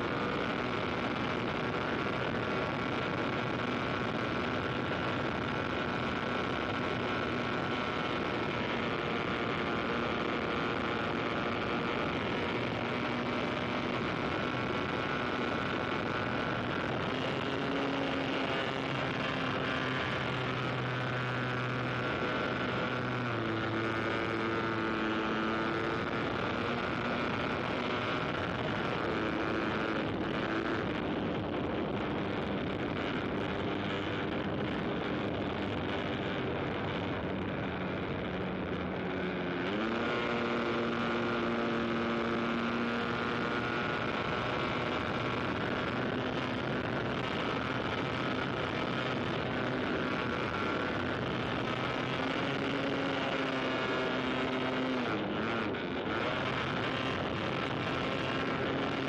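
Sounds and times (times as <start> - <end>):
small aircraft engines: 0.0 - 59.0.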